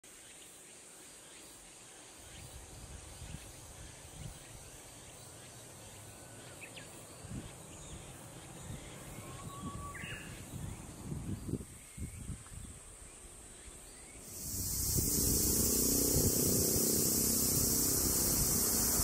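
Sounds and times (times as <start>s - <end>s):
cicadas calling: 13.0s - 19.0s
faint chirps: 13.5s - 19.0s.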